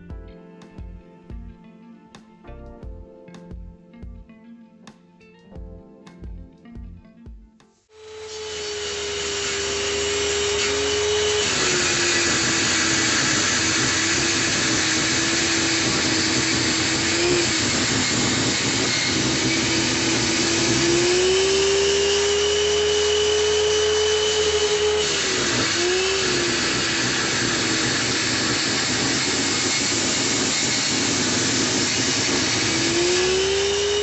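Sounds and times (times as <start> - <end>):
table saw cutting: 7.9 - 34.0.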